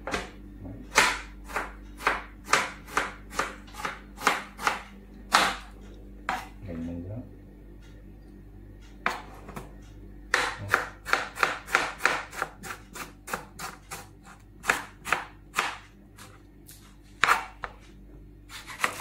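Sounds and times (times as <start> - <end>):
knife slicing tomatoes: 10.3 - 17.8, 18.5 - 19.0.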